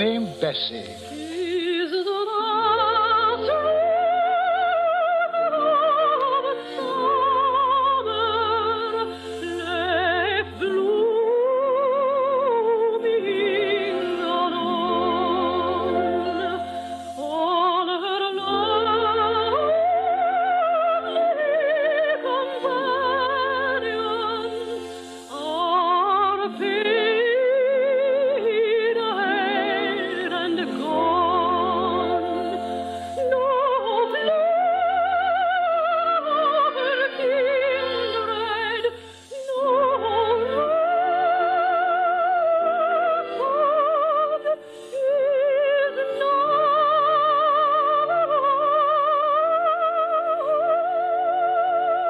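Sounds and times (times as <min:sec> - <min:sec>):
soft orchestral accompaniment: 0:00.0 - 0:52.0
soprano singing with vibrato: 0:00.0 - 0:52.0.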